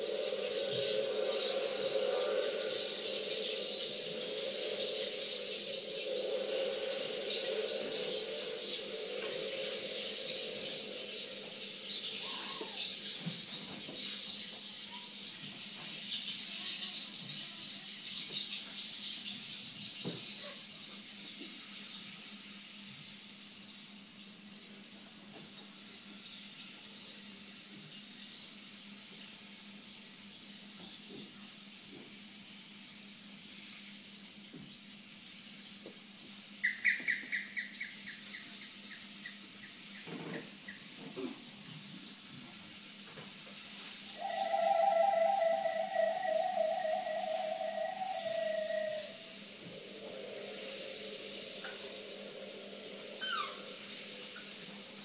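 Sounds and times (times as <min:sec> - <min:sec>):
sustained pitched notes: 0:00.0 - 0:12.4, 0:44.1 - 0:54.9
water-like rushing hiss: 0:00.0 - 0:55.0.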